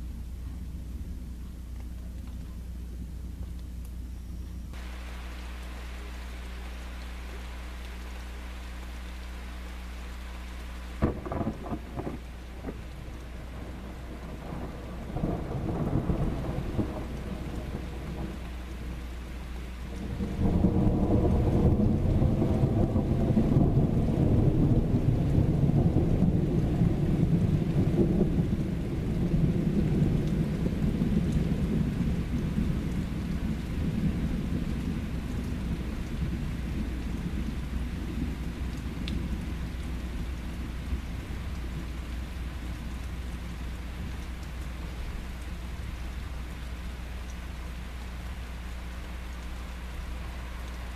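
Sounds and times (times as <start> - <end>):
steady rain: 0.0 - 50.9
thunder rumbling: 10.9 - 47.2.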